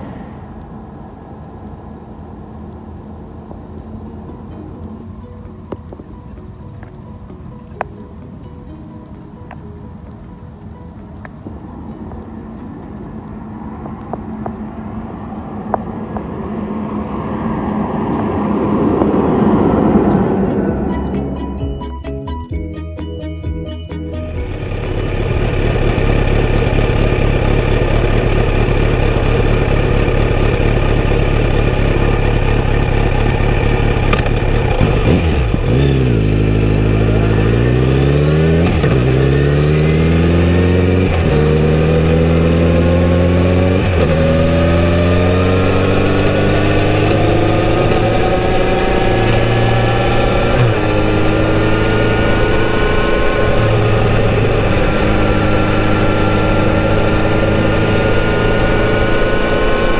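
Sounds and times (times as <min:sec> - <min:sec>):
motorcycle engine idling: 0:24.4 - 0:38.2
motorcycle accelerating through gears: 0:24.4 - 0:59.9.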